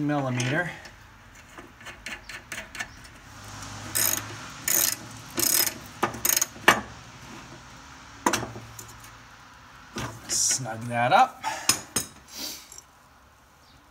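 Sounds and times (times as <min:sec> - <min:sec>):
ratchet wrench clicking: 0:03.8 - 0:06.5.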